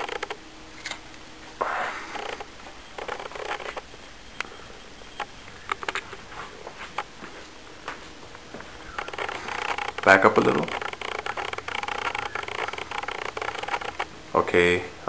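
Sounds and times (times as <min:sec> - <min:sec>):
sharp clicks and knocks: 0:00.0 - 0:01.0, 0:02.1 - 0:03.8, 0:05.1 - 0:06.2, 0:08.9 - 0:14.1.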